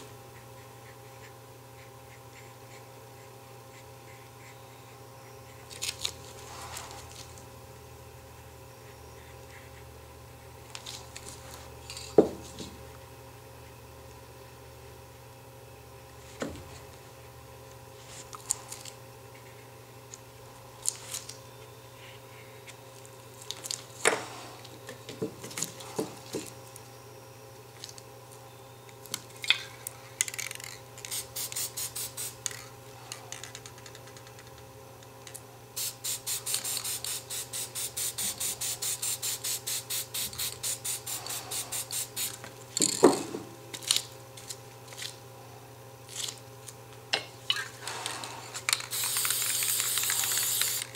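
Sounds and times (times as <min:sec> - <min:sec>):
spray paint can hissing: 0:31.0 - 0:32.4, 0:35.8 - 0:42.4, 0:48.8 - 0:50.9.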